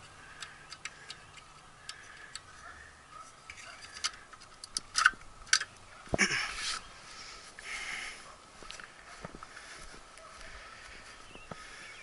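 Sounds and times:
metal clicks and handling: 0.0s - 2.5s, 3.2s - 5.8s.

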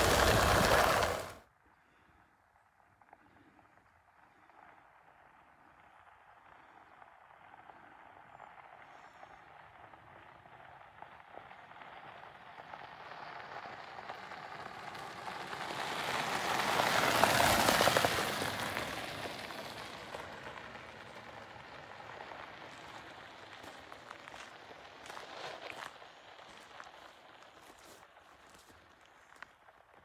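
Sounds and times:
scooter tyres rolling over gravel: 0.0s - 1.4s, 2.7s - 30.0s.

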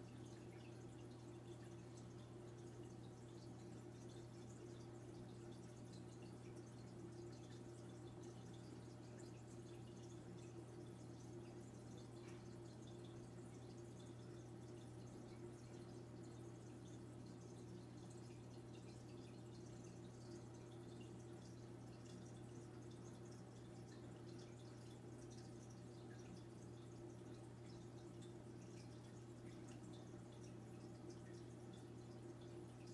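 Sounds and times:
aquarium filter hum: 0.0s - 32.9s
water trickling and dripping: 0.0s - 32.9s.

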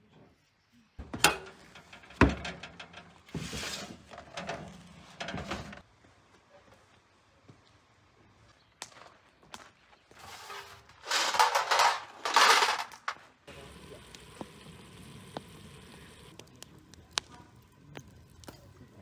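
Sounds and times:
metal pan clatter and scraping: 1.2s - 5.8s, 10.3s - 13.2s.

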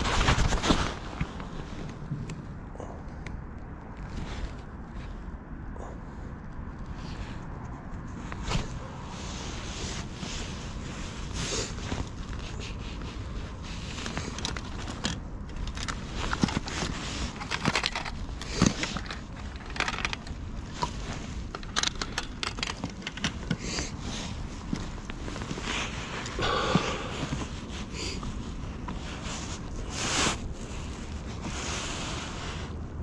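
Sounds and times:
clicks rattles and scrapes: 0.0s - 2.2s, 7.0s - 26.4s
steady low rumble: 0.0s - 33.0s.

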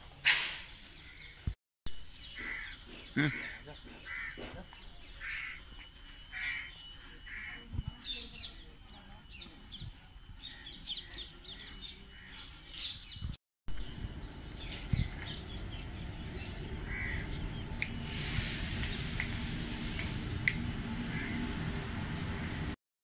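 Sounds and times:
small birds chirping: 0.7s - 22.7s
crows cawing: 2.3s - 5.7s, 6.3s - 7.7s, 16.8s - 17.4s.

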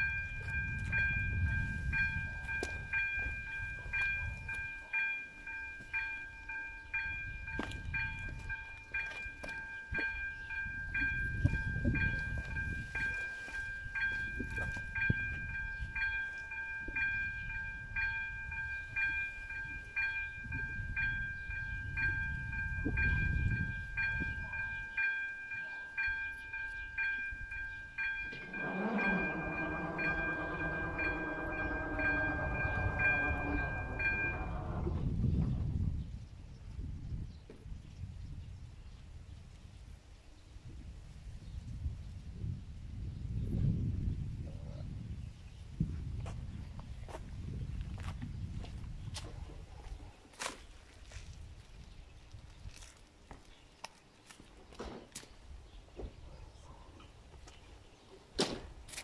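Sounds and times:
level-crossing warning bell: 0.0s - 35.2s
low rumble: 28.2s - 36.0s.

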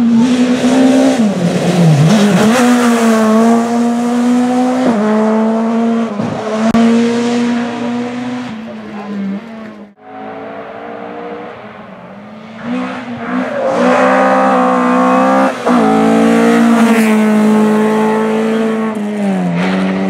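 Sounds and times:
rally car engine revving past: 12.2s - 20.0s.

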